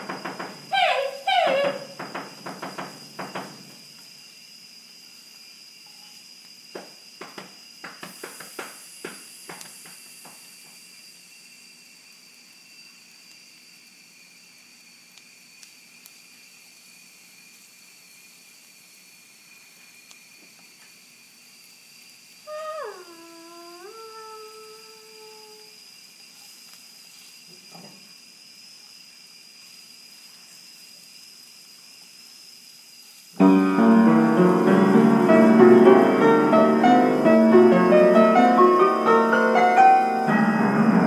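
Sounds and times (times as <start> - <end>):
faint high-pitched whine: 9.5 - 41.0.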